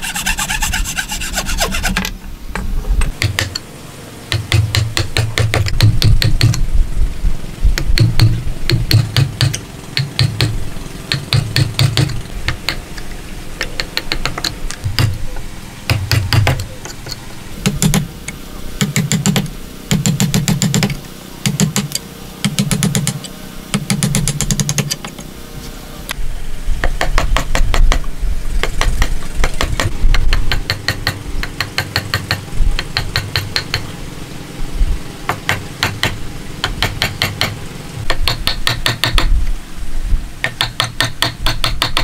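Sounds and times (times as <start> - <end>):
mallet tapping chisel into wood: 7.8 - 12.8, 15.9 - 16.6, 26.8 - 28.0, 28.7 - 33.8, 35.3 - 39.3, 40.4 - 42.0.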